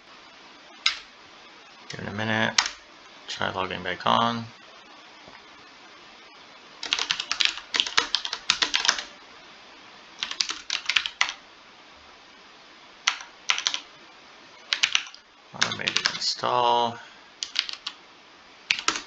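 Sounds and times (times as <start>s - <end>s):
keyboard typing: 2.6s - 2.8s, 6.8s - 9.1s, 10.2s - 11.4s, 13.0s - 13.9s, 14.7s - 16.2s, 17.4s - 18.0s, 18.7s - 19.0s.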